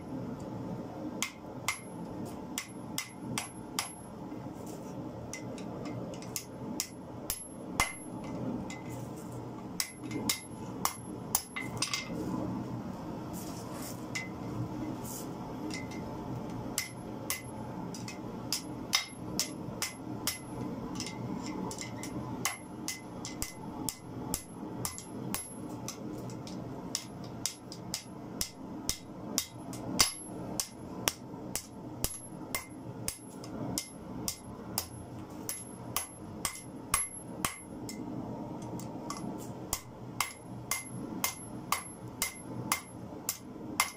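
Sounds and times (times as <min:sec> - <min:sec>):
low steady hum: 0:00.0 - 0:43.9
hammer striking steel on anvil: 0:01.2 - 0:04.2, 0:05.3 - 0:08.9, 0:09.8 - 0:12.1, 0:15.7 - 0:16.1, 0:16.7 - 0:26.0, 0:26.9 - 0:38.0, 0:39.1 - 0:43.9.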